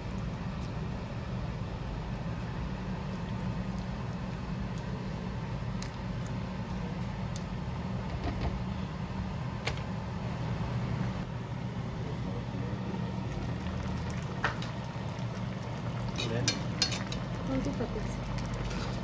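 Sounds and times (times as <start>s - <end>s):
food simmering with pops: 0.0s - 7.6s, 13.0s - 19.0s
low kitchen hum: 0.0s - 19.0s.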